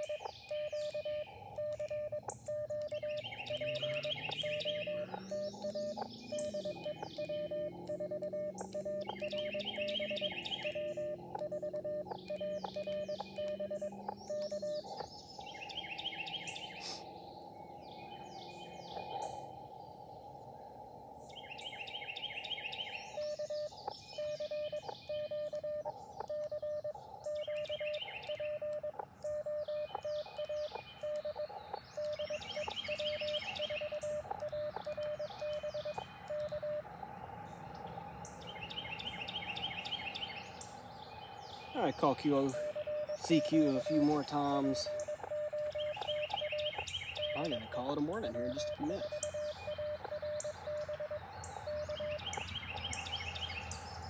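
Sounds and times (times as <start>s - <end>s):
morse code beeps: 0.0s - 15.1s, 22.8s - 36.9s, 41.7s - 53.3s
birds chirping: 0.0s - 54.0s
radio receiver hiss: 16.7s - 17.1s.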